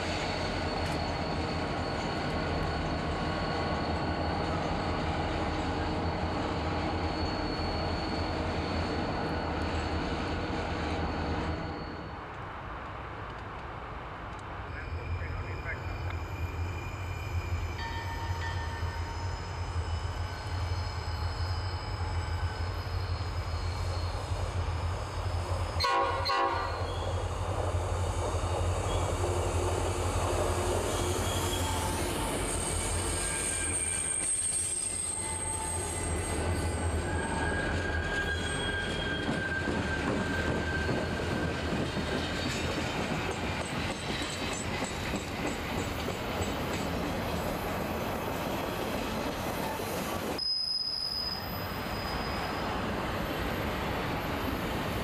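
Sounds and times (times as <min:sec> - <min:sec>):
train wheel squeal: 0:00.0 - 0:12.4, 0:14.6 - 0:55.0
train horn blast: 0:25.8 - 0:26.8.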